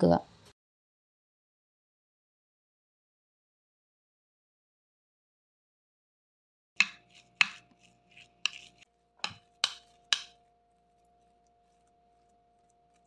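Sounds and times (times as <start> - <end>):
spoon knocking ceramic bowl: 6.8 - 7.7, 8.4 - 10.5.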